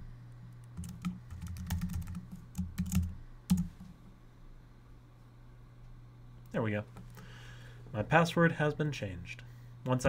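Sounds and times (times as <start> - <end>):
typing on computer keyboard: 0.8 - 3.7.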